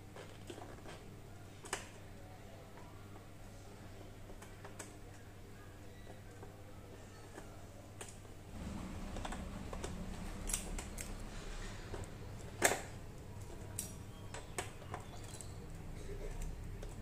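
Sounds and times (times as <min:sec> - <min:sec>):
low steady hum: 0:01.1 - 0:17.0.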